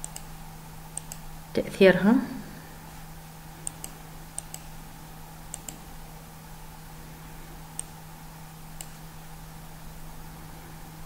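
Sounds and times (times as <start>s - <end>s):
computer mouse clicking: 0.0s - 0.3s, 1.0s - 1.3s, 3.6s - 4.7s, 5.5s - 5.9s, 7.8s - 8.0s, 8.8s - 9.0s
steady low hum: 0.0s - 11.0s.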